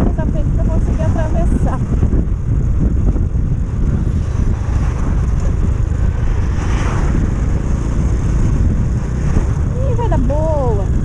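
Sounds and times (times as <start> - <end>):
motorcycle engine running: 0.0 - 11.0
wind rumbling on microphone: 0.0 - 11.0.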